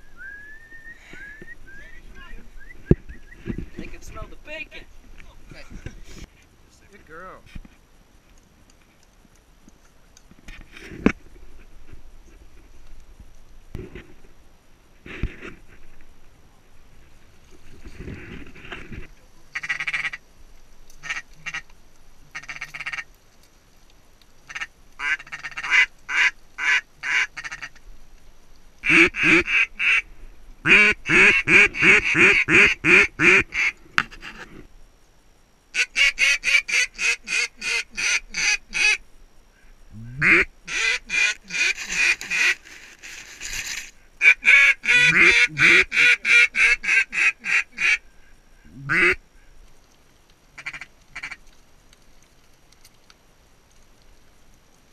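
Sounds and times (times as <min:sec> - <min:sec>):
goose call clucks and honks: 0:22.3 - 0:23.0, 0:24.5 - 0:27.8, 0:28.8 - 0:30.0, 0:30.7 - 0:33.7, 0:35.8 - 0:39.0, 0:40.1 - 0:42.6, 0:44.2 - 0:48.0, 0:48.8 - 0:49.2.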